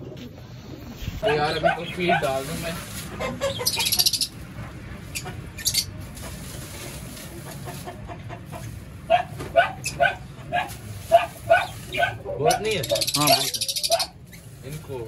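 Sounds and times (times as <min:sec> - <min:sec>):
birds calling: 0:00.6 - 0:15.0
high rustling: 0:00.9 - 0:13.4.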